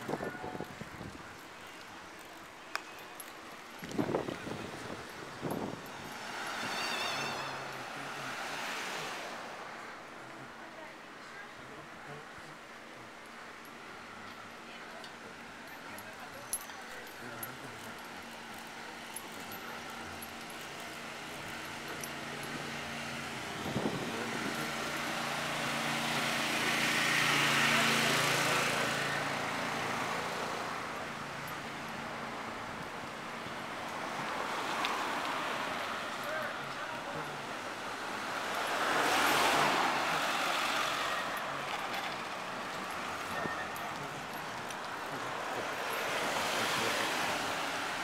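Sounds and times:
street traffic noise: 0.0s - 48.0s
vehicle passing by: 4.0s - 9.8s, 21.4s - 31.0s, 33.9s - 48.0s.

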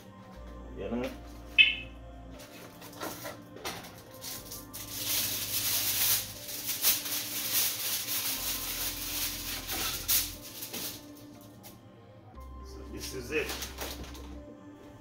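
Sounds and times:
aluminium foil crinkling: 2.4s - 11.8s, 13.3s - 14.3s.

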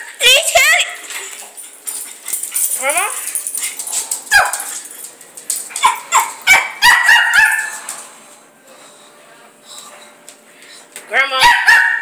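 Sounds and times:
dog-like yelps and barks: 5.8s - 7.7s, 11.4s - 12.0s.

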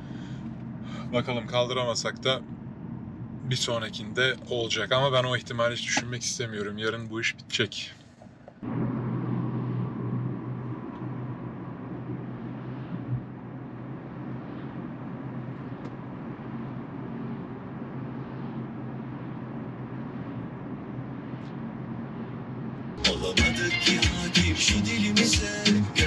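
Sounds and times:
road and engine noise in car: 0.0s - 26.0s
music: 23.0s - 26.0s.

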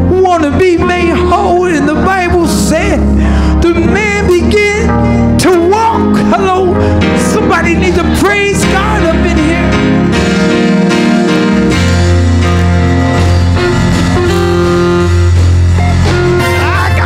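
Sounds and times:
man singing into a microphone: 0.0s - 9.8s
guitar and bass music: 0.0s - 17.0s.

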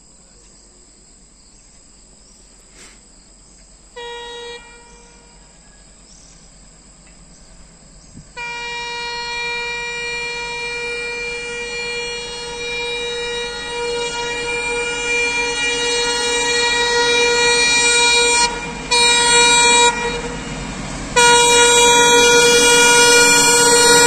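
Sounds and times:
faint steady hiss: 0.0s - 12.6s
diesel locomotive horn: 3.9s - 24.0s.

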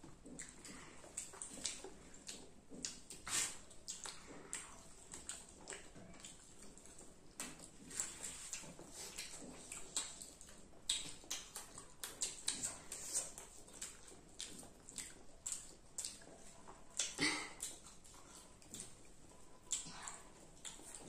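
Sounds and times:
children chewing and lip smacking: 0.0s - 21.0s.

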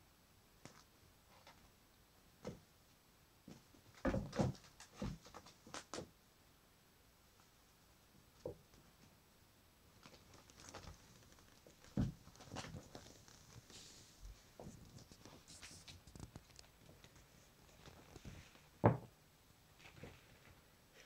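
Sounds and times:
kittens scuffing and rustling: 3.4s - 6.1s, 9.9s - 18.8s, 19.7s - 21.0s.

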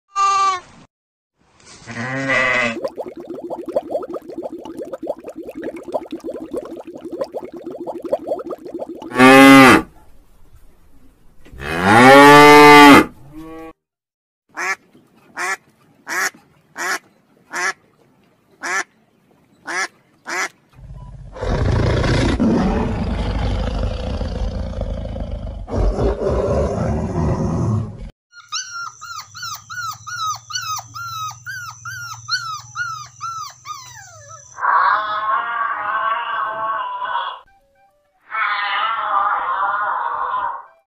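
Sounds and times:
puppies whining and yipping: 28.4s - 34.6s.

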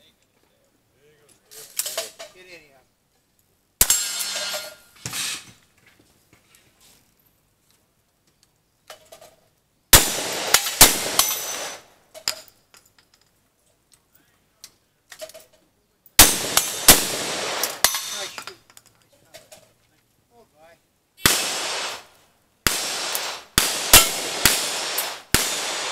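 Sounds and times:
metallic clinks of gun reloading: 1.4s - 2.4s, 10.5s - 13.4s, 15.1s - 16.9s, 17.6s - 19.8s
loud gunshots with ringing tail: 9.9s - 11.8s, 16.2s - 18.4s, 21.2s - 25.9s.

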